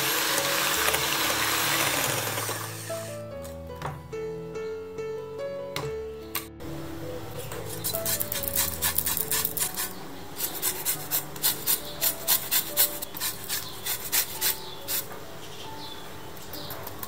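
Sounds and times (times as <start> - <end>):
zester rasping rind: 0.0 - 3.2, 7.6 - 15.1.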